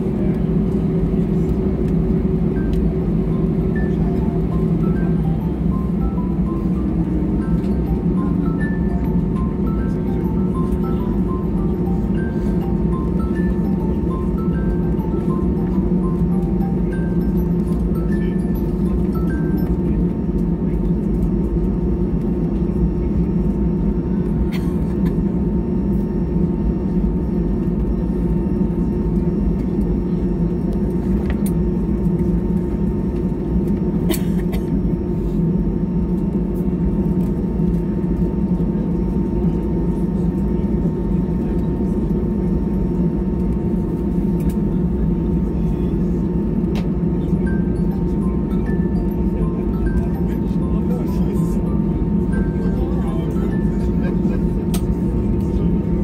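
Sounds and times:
aircraft cabin engine drone: 0.0 - 56.0
thin steady whine: 34.8 - 56.0.

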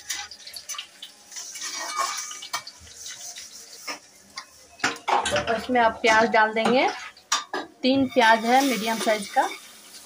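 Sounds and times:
hot oil sizzling: 0.0 - 10.0
spatula scraping steel pan: 1.3 - 5.4, 8.0 - 9.8.

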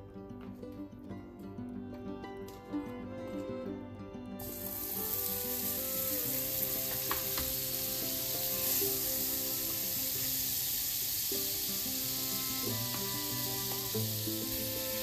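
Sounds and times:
soft background music: 0.0 - 15.0
pancakes sizzling in a pan: 4.4 - 15.0.

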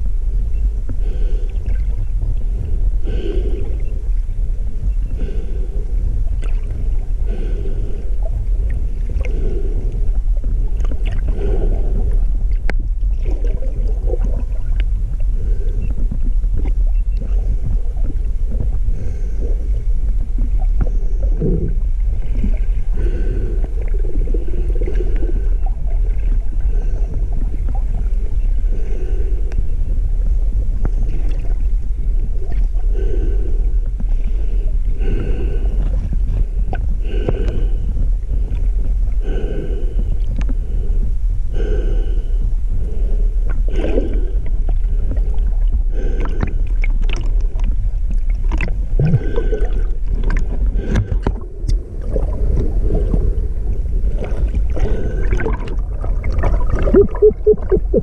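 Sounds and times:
rumble of water and boat: 0.0 - 58.0
whale clicks: 46.0 - 58.0.

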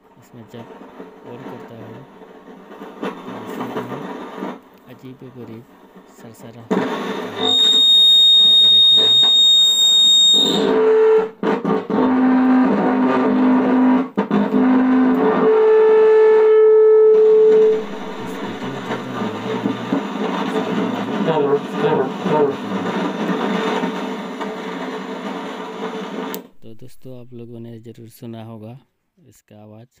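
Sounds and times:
rustling crackly noise: 0.1 - 7.3, 17.2 - 27.9
high-pitched amplifier whistle: 6.9 - 14.0, 14.6 - 23.8, 26.2 - 27.9
low droning tones: 16.4 - 23.5, 26.4 - 28.0.

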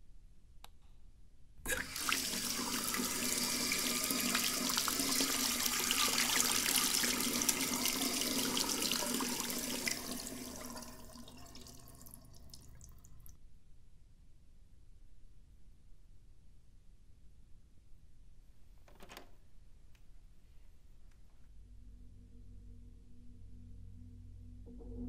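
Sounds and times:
water running into a basin: 1.7 - 13.4.

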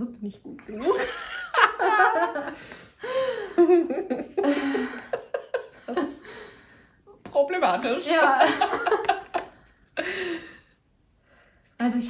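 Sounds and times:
women laughing: 0.8 - 6.3, 8.1 - 10.2.

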